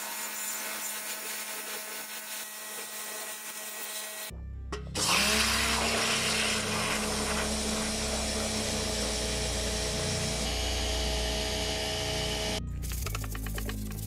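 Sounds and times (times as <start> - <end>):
pressure washer motor: 5.0 - 12.6
water jet hissing into bucket: 5.7 - 7.8.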